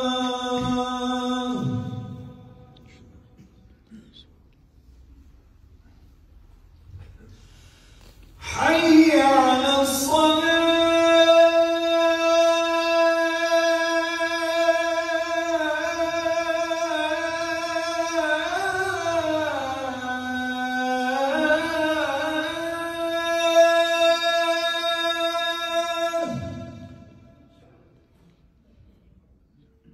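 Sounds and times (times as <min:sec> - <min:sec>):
man chanting call to prayer: 0:00.0 - 0:03.2, 0:08.4 - 0:28.0.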